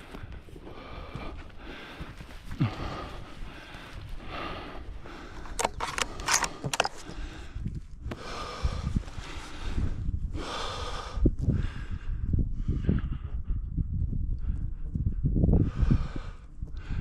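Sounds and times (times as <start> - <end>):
footsteps in low brush: 0.0 - 8.1
heavy breathing: 0.0 - 13.8, 14.4 - 17.0
gear clicks: 5.2 - 7.1.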